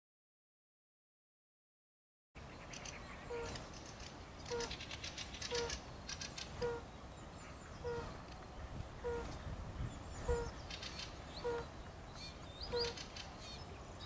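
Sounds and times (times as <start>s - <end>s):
toad hooting call: 4.5s - 4.8s, 5.5s - 5.8s, 6.6s - 6.9s, 7.8s - 8.2s, 9.0s - 9.3s, 10.2s - 10.6s, 11.4s - 11.7s, 12.7s - 13.0s.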